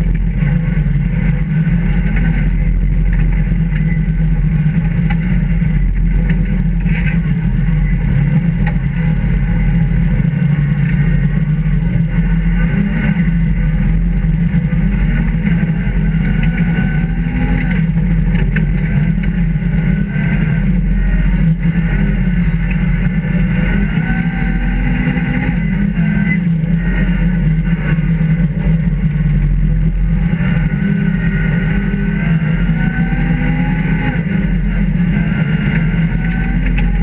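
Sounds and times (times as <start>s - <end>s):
rally car engine from inside cabin: 0.0s - 37.0s.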